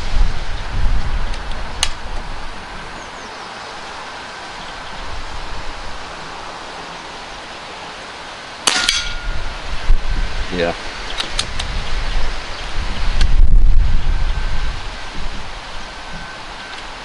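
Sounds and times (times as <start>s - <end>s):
wind noise: 0.0s - 7.5s, 8.8s - 17.0s
air rifle shot: 8.7s - 9.2s.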